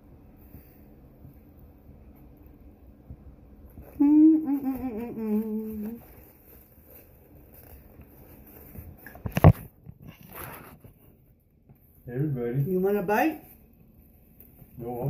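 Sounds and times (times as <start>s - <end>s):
woman humming with mouth closed: 3.8s - 6.1s.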